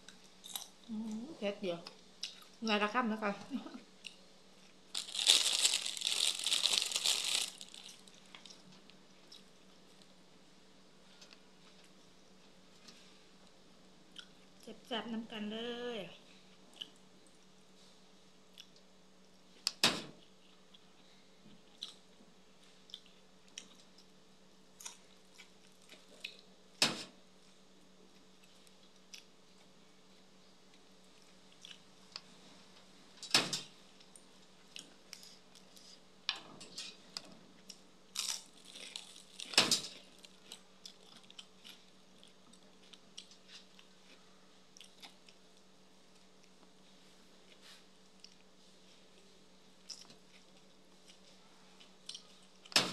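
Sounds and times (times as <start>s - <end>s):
faint steady hum: 0.0s - 52.9s
person chewing crunchy food: 4.0s - 8.6s, 37.6s - 45.4s, 49.8s - 52.7s.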